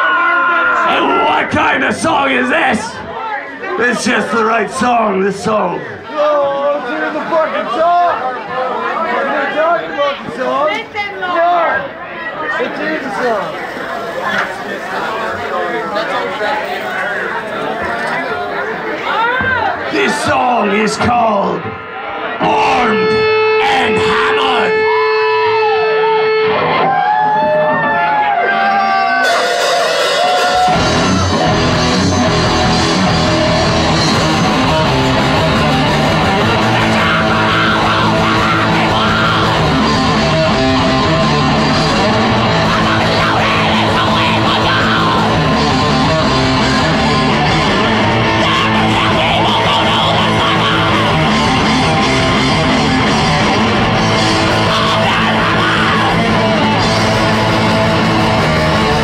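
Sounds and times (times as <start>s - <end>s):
death metal band playing live: 19.9s - 59.0s.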